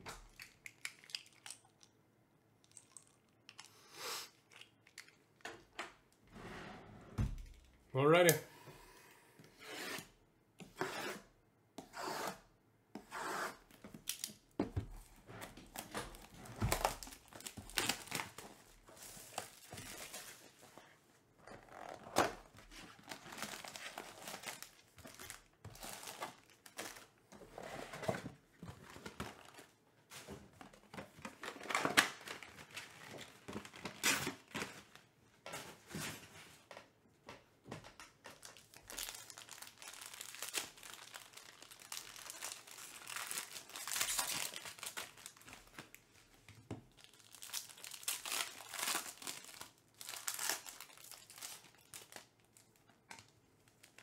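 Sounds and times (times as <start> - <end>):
foil packs crinkling: 15.7 - 20.6, 22.0 - 27.2, 31.1 - 35.1, 38.3 - 52.8.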